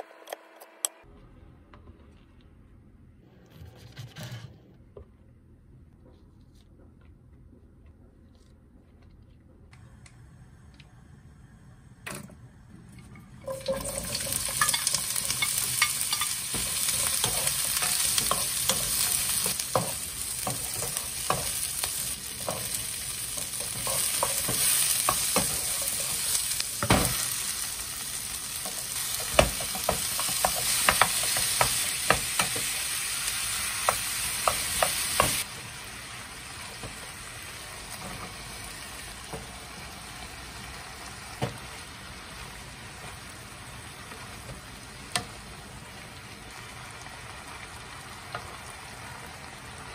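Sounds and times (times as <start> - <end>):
vegetables sizzling in oil: 13.4 - 49.9
wooden spatula knocking pan: 29.2 - 32.7.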